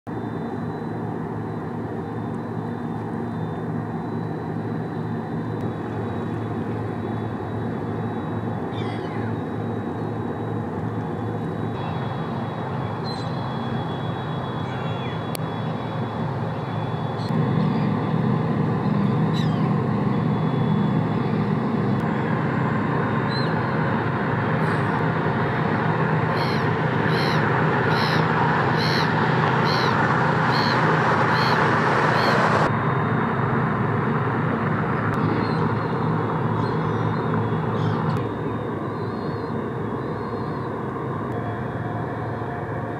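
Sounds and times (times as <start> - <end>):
ship machinery hum: 0.1 - 42.9
bird calling: 7.9 - 17.9, 19.2 - 20.4, 26.3 - 32.7, 35.2 - 38.2.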